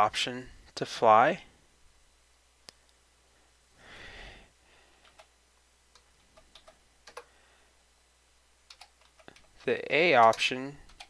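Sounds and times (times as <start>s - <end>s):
keyboard keys clicking: 6.4s - 7.3s, 8.7s - 11.0s.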